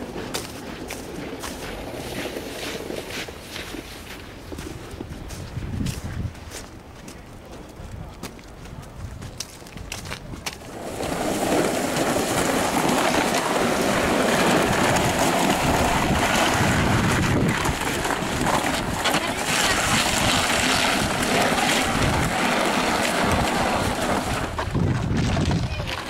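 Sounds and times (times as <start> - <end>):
snow shovels scraping street: 0.0 - 5.4, 10.6 - 26.0
snowblower engine running: 10.7 - 24.7.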